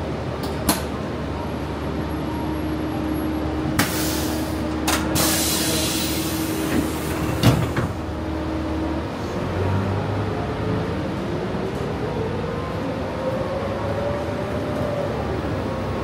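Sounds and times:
rising vehicle whine: 0.0 - 16.0
air hiss bursts: 5.2 - 6.6.

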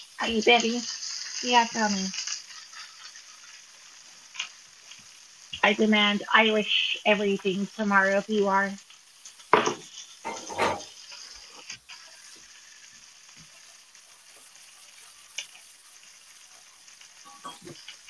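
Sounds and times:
burger sizzling in a pan: 0.0 - 18.0.

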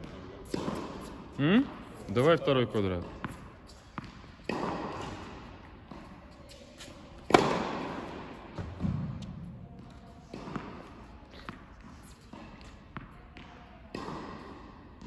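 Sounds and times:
tennis racket striking ball: 0.0 - 1.2, 2.8 - 14.6
ball bouncing: 3.0 - 5.2, 7.2 - 7.8.

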